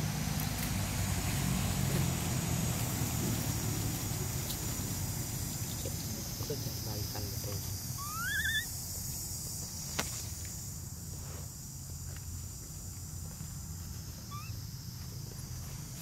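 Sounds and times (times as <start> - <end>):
steady high hiss: 0.0 - 16.0
baby monkey squealing: 7.9 - 8.8, 14.3 - 14.6
faint squeak: 8.0 - 8.7, 14.3 - 14.6.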